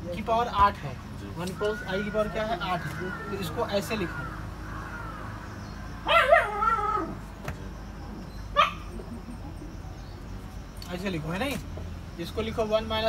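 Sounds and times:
dog yelping: 6.0 - 7.3, 8.5 - 9.5
dog whining: 6.1 - 7.2.

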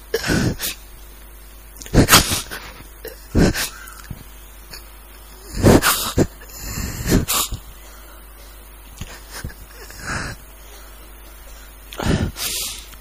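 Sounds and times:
gasping sniffing breaths: 5.4 - 13.0.

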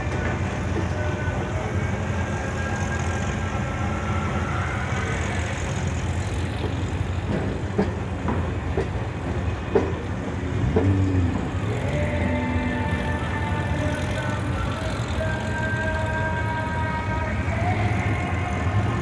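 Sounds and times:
car engines rumbling: 0.0 - 19.0
engine revving: 10.5 - 19.0.

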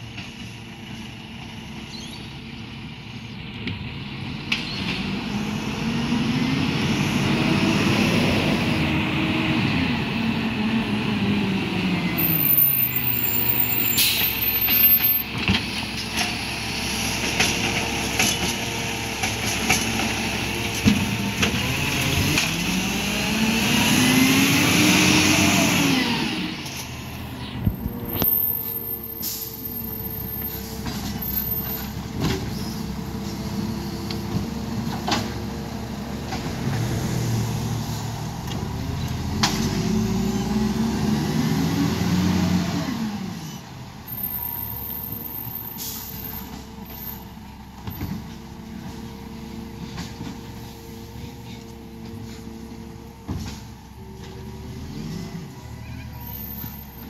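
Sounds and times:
truck engine revving: 4.5 - 29.0, 30.1 - 43.5
air-brake hiss: 12.2 - 15.1, 28.6 - 32.0, 45.4 - 47.3.

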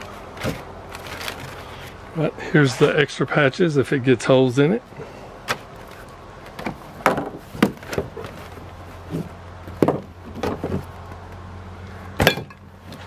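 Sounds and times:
vinyl rustling: 0.0 - 3.0, 5.4 - 11.5
steady low hum: 0.0 - 13.0.

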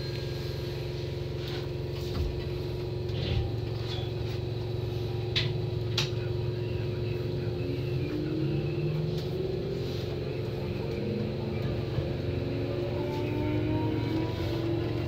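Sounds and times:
train motor whine rising: 6.3 - 15.0
train wheels rumbling on track: 7.0 - 15.0.

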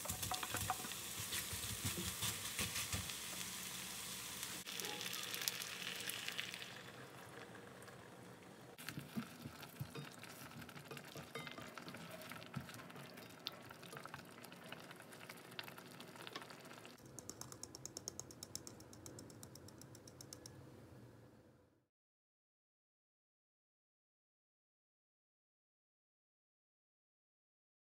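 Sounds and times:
cream sizzling in a pan: 0.0 - 17.0.

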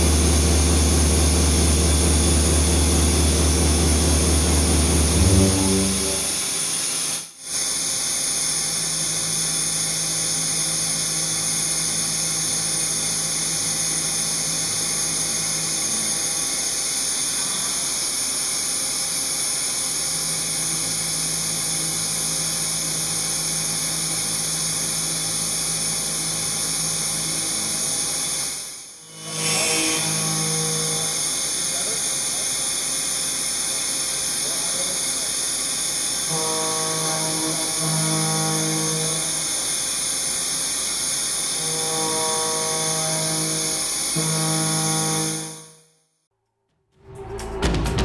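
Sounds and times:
low milling tone: 0.0 - 6.9, 29.1 - 31.3
heavier milling hum: 0.0 - 7.0
high-pitched metal cutting hiss: 29.1 - 33.0.

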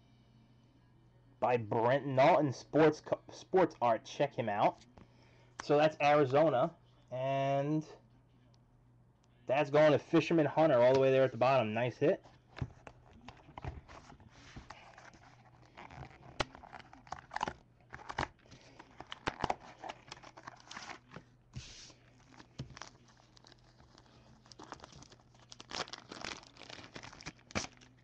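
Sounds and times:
wrapper crinkling and tearing: 14.7 - 21.2, 22.0 - 28.0.

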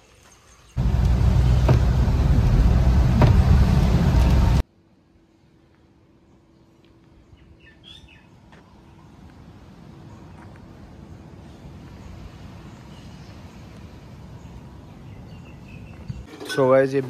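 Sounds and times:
knocks: 0.8 - 4.6
rain on car windscreen: 0.8 - 4.6
tyres on wet road: 0.8 - 4.6
bird chirping: 7.2 - 9.2, 14.3 - 16.3.

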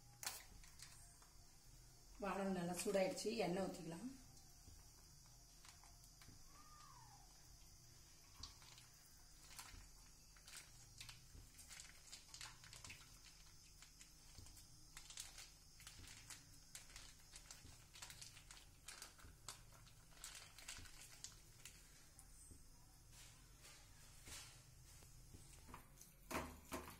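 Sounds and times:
plastic pouch crinkling: 0.2 - 1.2, 8.4 - 21.9.

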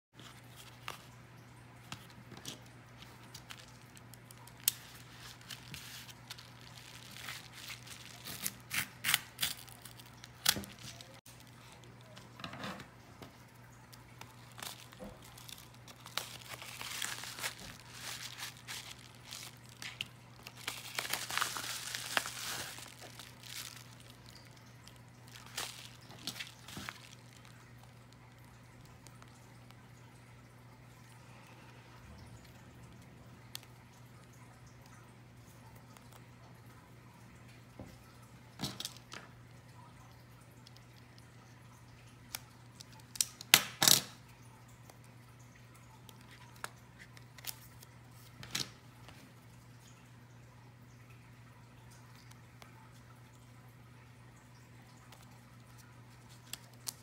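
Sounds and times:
paper crinkling and rustling: 0.2 - 1.2, 1.8 - 12.4, 14.0 - 29.3, 46.0 - 49.3, 55.1 - 57.0.

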